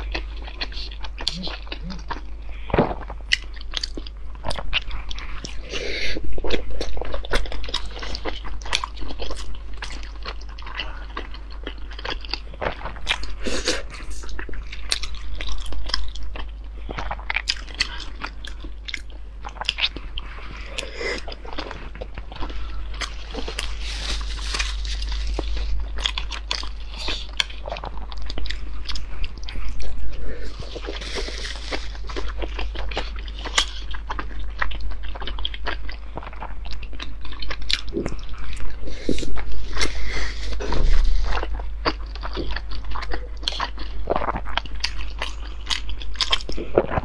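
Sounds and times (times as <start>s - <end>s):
wet chewing and mouth sounds: 0.0s - 47.0s.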